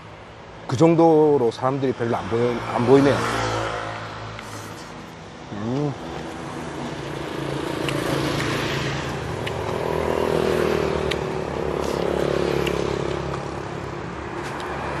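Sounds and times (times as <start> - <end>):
steady traffic hum: 0.0 - 15.0
car engine passing: 2.2 - 15.0
motorbike engine passing: 6.6 - 14.2.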